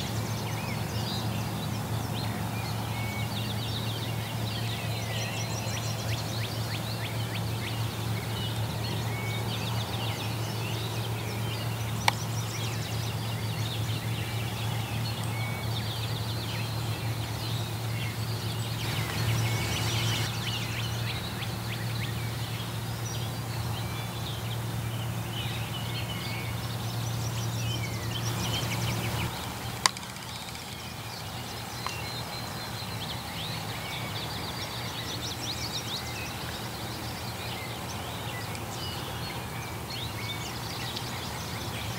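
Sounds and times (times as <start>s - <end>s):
steady low hum: 0.0s - 32.8s
songbirds singing: 0.0s - 41.9s
sharp clicks: 29.8s - 30.9s.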